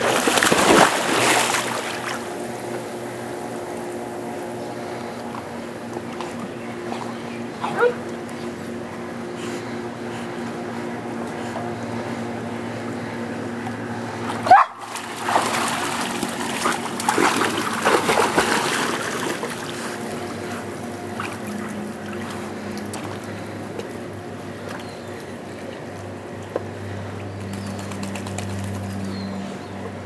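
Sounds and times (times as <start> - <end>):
dog splashing in water: 0.0 - 2.2, 14.7 - 20.0
water lapping: 0.0 - 2.4, 9.3 - 25.8
low hum: 0.0 - 30.0.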